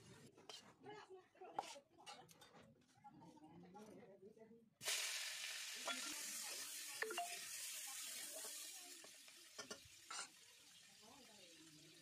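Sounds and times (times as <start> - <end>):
vegetables sizzling in oil: 4.8 - 12.0.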